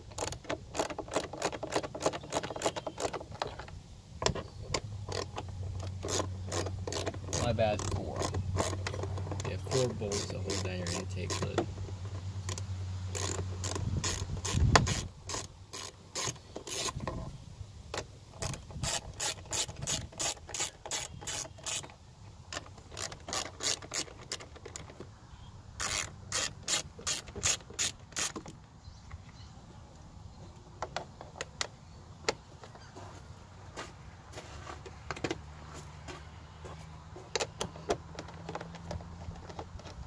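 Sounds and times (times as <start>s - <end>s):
socket ratchet clicking: 0.1s - 3.6s, 4.3s - 17.0s, 18.4s - 24.9s, 25.8s - 28.5s.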